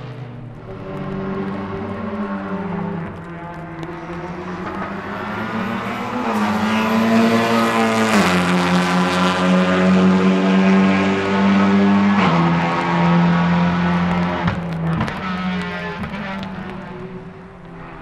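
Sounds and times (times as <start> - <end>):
race car engine passing: 0.0 - 18.0.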